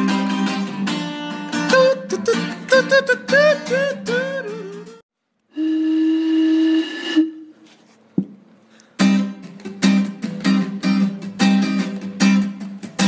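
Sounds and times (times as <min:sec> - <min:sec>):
strummed string instrument chords: 0:00.0 - 0:05.0.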